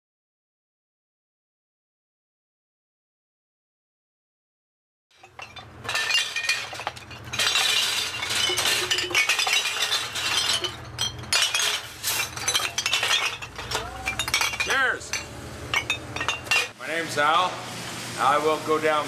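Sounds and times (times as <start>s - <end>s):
glass bottles clinking: 5.2s - 16.8s.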